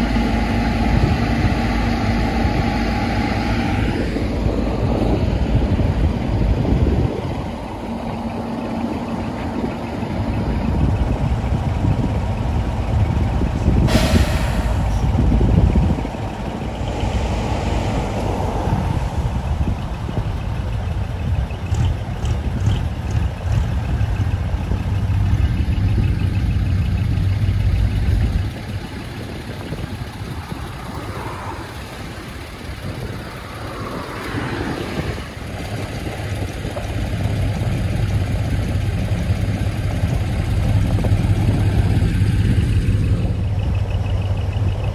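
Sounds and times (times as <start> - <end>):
diesel trucks driving past: 0.0 - 44.9
sharp hiss: 13.9 - 15.2.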